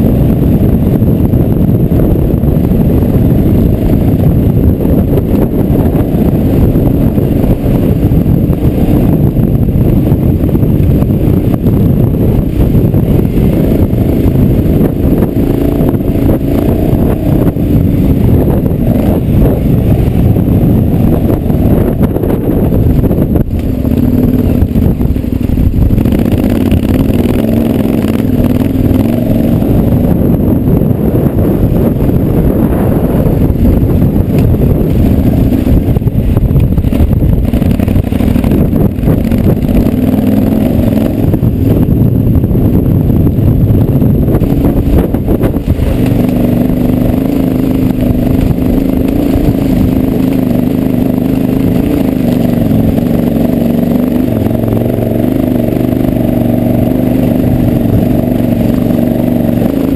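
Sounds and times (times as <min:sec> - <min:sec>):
motorcycle engine revving: 0:00.0 - 0:59.9
wind buffeting microphone: 0:00.0 - 0:59.9.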